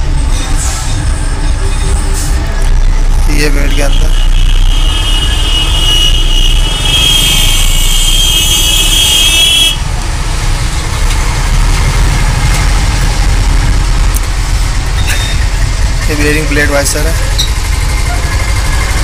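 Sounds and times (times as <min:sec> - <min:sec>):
vehicle engine running: 0:09.8 - 0:19.0.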